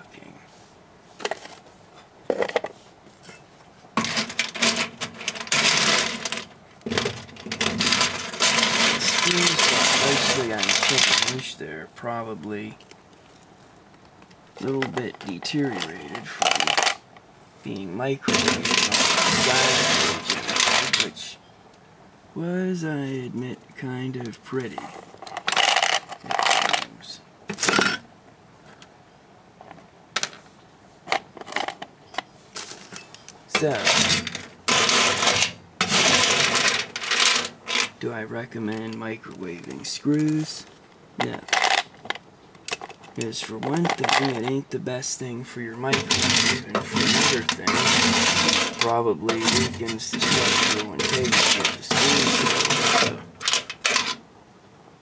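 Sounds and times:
metal screws rattling: 0:04.0 - 0:11.4, 0:18.3 - 0:21.1, 0:25.2 - 0:26.9, 0:33.0 - 0:38.0, 0:45.9 - 0:54.2.

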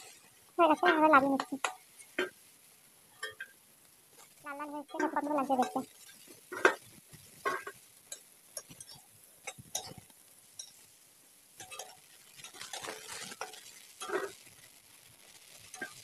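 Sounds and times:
metal spatula clinking on pan: 0:00.8 - 0:02.4, 0:03.2 - 0:03.6, 0:04.9 - 0:10.8, 0:11.6 - 0:14.5, 0:15.6 - 0:16.0.

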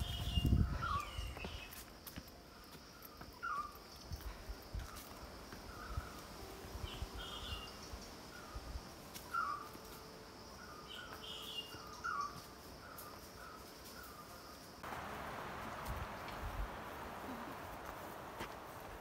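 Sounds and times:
high-pitched insect buzz: 0:04.8 - 0:14.8
birds calling: 0:09.2 - 0:09.8, 0:10.6 - 0:14.3.

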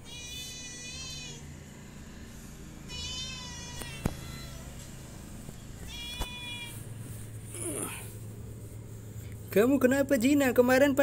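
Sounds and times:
kitten mewing: 0:02.9 - 0:04.7, 0:05.8 - 0:06.8.

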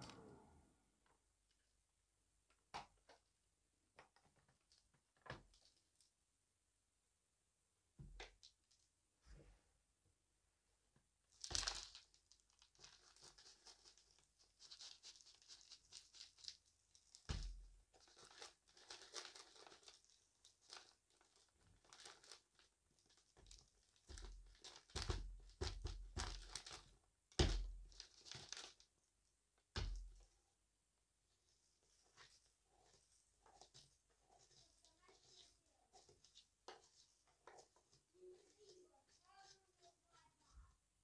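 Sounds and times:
debris rustling and crinkling: 0:11.3 - 0:25.6.

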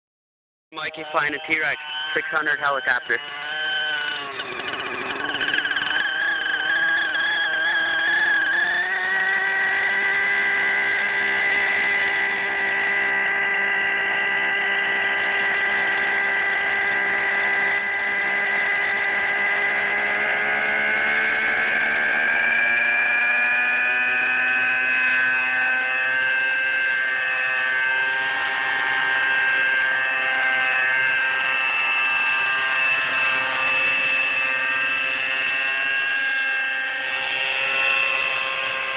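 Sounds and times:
model helicopter engine spooling up: 0:00.8 - 0:38.9.

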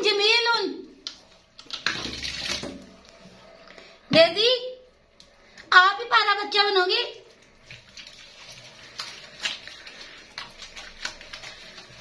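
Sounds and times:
wet squishes and pats: 0:00.9 - 0:03.2, 0:07.3 - 0:12.0.

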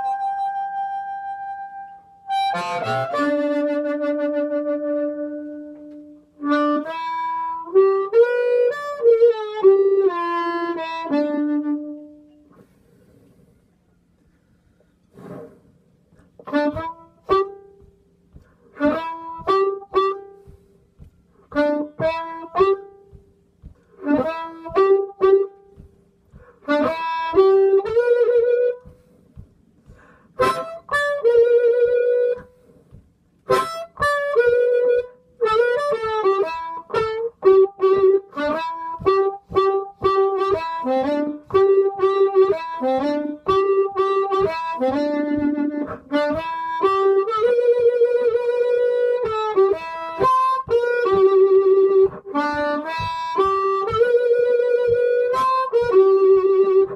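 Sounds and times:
amplified blues harmonica: 0:00.0 - 0:13.5, 0:16.1 - 0:56.9.

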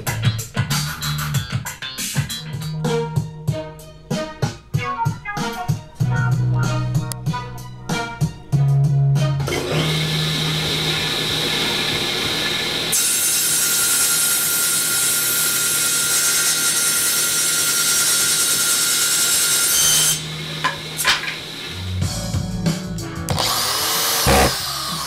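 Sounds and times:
table saw running: 0:09.4 - 0:22.0, 0:23.3 - 0:25.0
saw ripping through wood board: 0:23.3 - 0:25.0.

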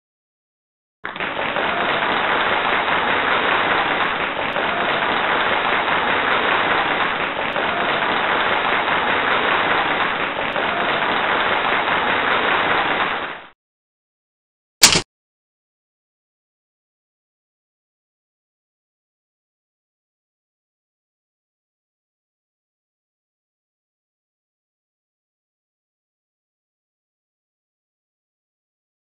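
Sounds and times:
short sharp sound: 0:14.8 - 0:15.0.

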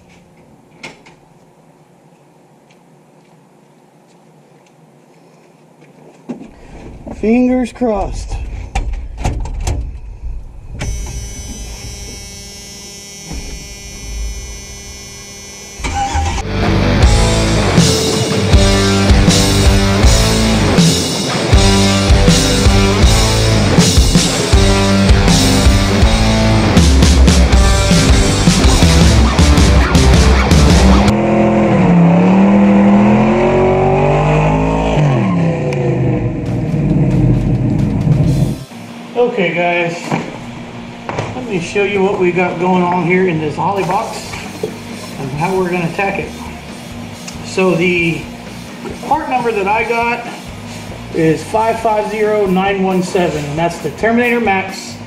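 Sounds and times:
electric motor whine: 0:10.8 - 0:21.0
car engine revving: 0:11.2 - 0:38.7.

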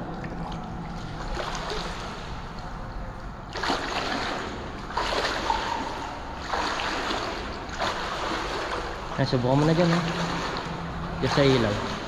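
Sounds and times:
water sloshing and splashing: 0:00.0 - 0:12.0
water rushing surges: 0:03.5 - 0:12.0.

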